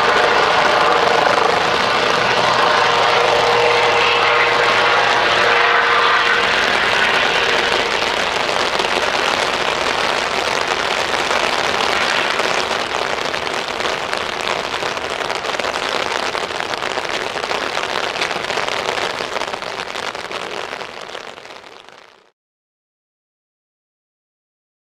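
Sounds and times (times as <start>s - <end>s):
helicopter turbine whine: 0.0s - 14.1s
rain hissing: 0.0s - 22.3s.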